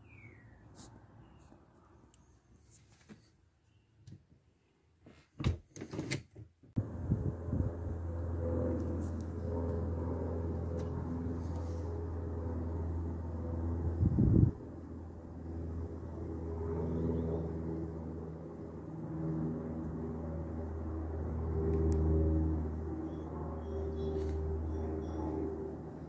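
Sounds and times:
outdoor rumble: 6.8 - 26.0.

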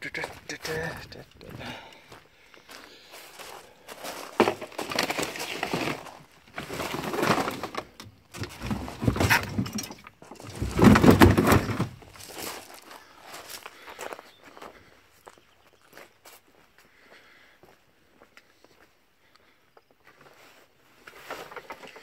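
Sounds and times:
junk clattering in wooden trailer: 4.0 - 12.8.

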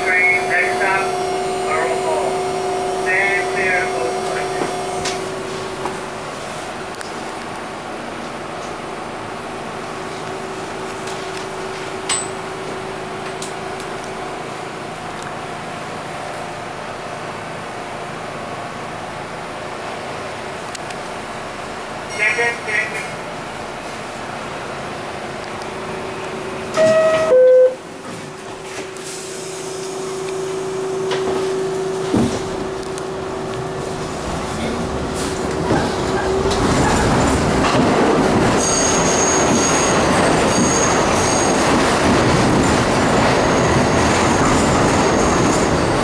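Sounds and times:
subway car rumble and hum: 0.0 - 46.0
two-tone door chime: 26.8 - 27.8.

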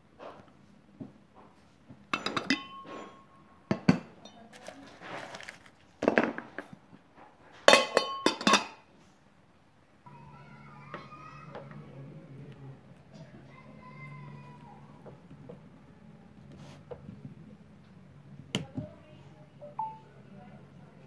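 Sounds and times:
glass lid clinking on jar: 2.2 - 3.2
wrapped sweets rustling: 4.4 - 6.7.

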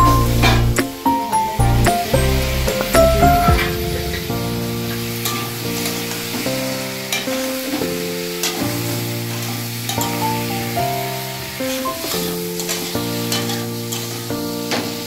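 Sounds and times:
background music with held chords: 0.0 - 11.7
potatoes sizzling in oil: 5.1 - 15.0.

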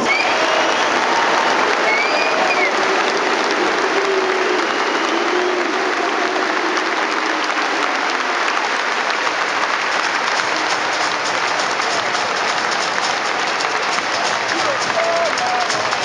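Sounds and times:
crowd applauding: 0.0 - 16.0
individual claps close by: 0.1 - 16.0.

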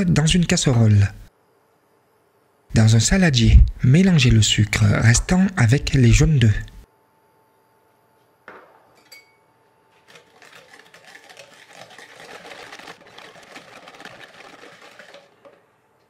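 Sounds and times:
whisk clicking against bowl: 10.1 - 15.6.

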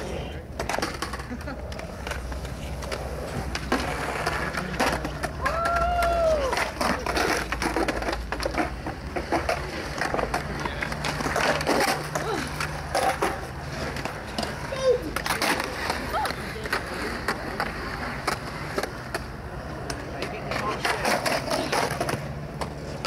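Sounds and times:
skateboards rolling on concrete: 0.0 - 23.0.

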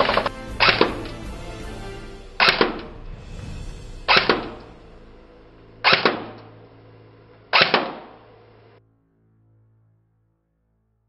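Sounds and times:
airsoft gun shots cracking: 0.0 - 1.2, 2.4 - 3.0, 4.1 - 4.8, 5.8 - 6.6, 7.5 - 8.3.

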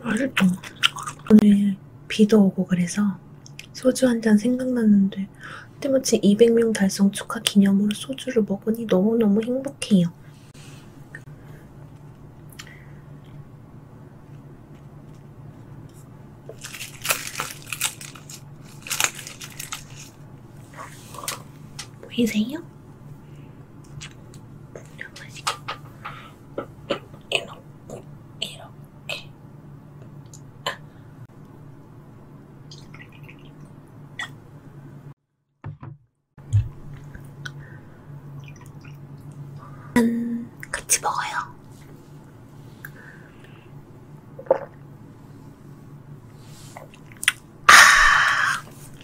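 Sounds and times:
seaweed sheet crackling: 16.5 - 20.2.

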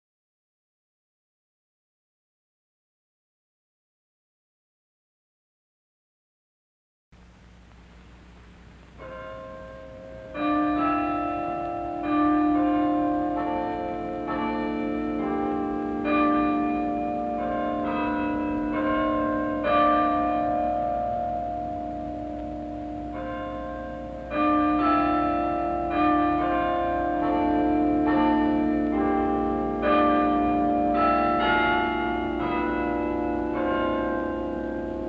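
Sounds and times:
tower bells playing slow tune: 8.2 - 35.0.

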